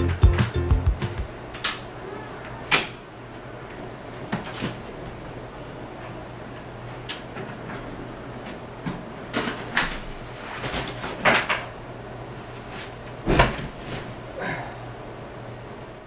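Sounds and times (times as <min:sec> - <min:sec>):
body thumping onto bed: 0:13.2 - 0:14.2.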